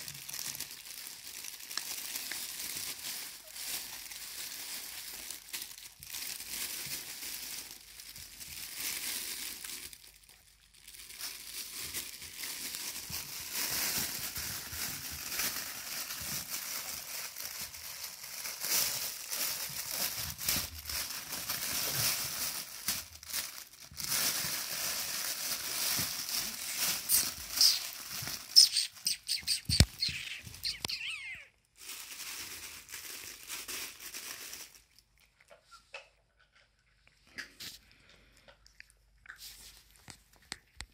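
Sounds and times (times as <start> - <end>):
crinkling fabric tunnel: 0.0 - 35.0.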